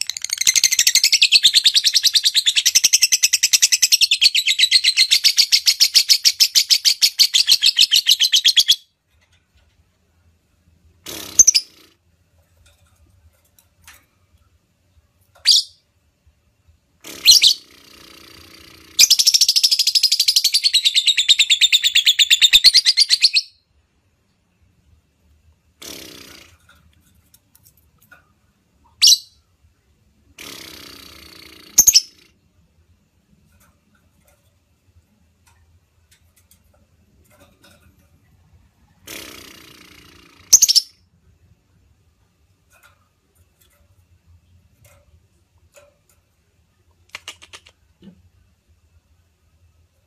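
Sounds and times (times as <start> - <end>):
lovebird chirping: 0.0 - 8.9, 11.1 - 11.9, 15.4 - 15.8, 17.1 - 23.6, 28.9 - 29.4, 30.4 - 32.3, 39.1 - 41.0
lovebird chattering trill: 11.1 - 11.9, 17.0 - 23.6, 29.0 - 29.4, 30.4 - 32.3, 39.1 - 41.0.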